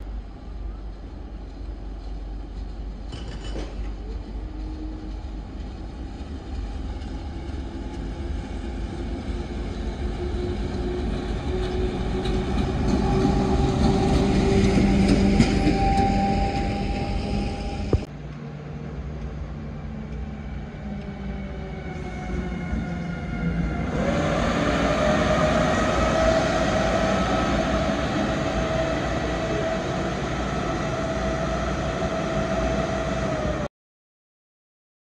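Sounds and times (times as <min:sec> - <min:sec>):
electric locomotive whine: 0:00.0 - 0:33.7
wheel and rail noise: 0:00.3 - 0:33.7.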